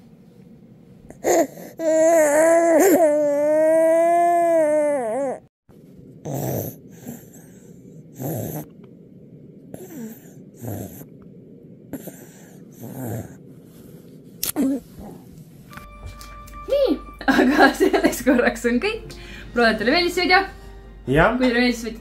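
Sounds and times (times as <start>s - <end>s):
child breathing: 6.3s - 8.7s, 9.7s - 11.1s, 11.9s - 14.1s, 19.1s - 19.6s.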